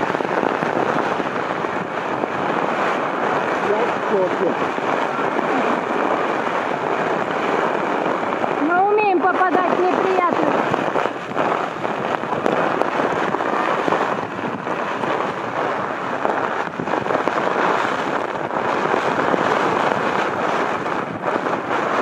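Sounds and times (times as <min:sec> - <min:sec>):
strong wind blasting microphone: 0:00.0 - 0:22.0.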